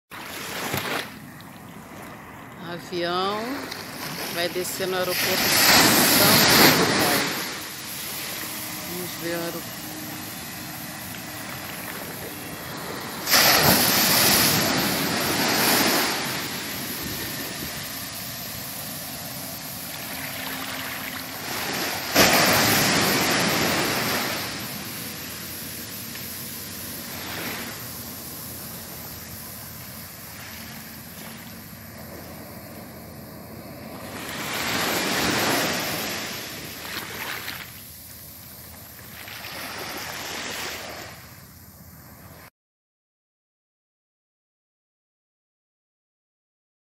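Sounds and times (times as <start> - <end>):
small waves washing onto sand: 0.1 - 41.3
wind on microphone: 3.1 - 19.2
loud rushes of noise: 5.1 - 29.0.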